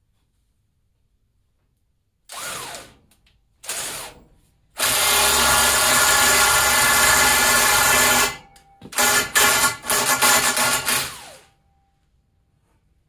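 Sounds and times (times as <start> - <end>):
electric drill running under load: 2.3 - 3.0, 3.6 - 4.2, 4.8 - 11.5.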